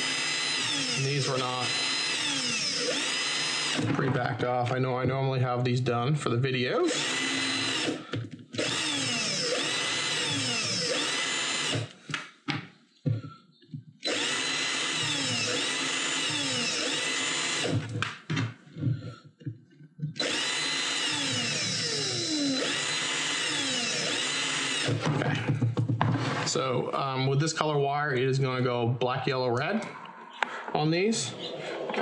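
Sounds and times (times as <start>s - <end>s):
cordless drill motor whine: 0.0s - 3.8s, 6.9s - 12.0s, 14.0s - 18.0s, 20.2s - 25.0s.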